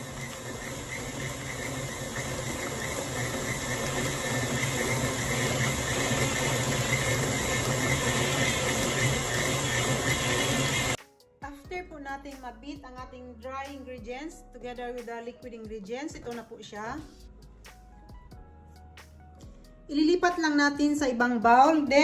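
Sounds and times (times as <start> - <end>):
stand mixer motor humming: 0.0 - 11.0.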